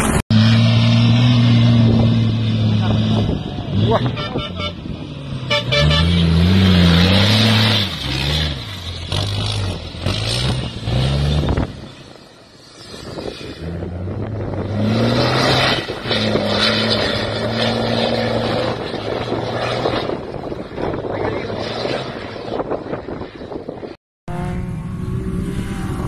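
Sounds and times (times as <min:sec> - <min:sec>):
truck diesel engine revving: 0:00.0 - 0:20.4.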